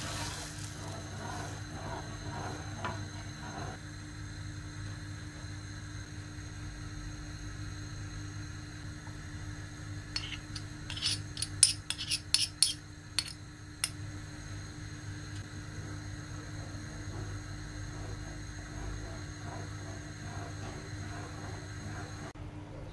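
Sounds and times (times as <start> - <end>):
steady low hum: 0.1 - 22.9.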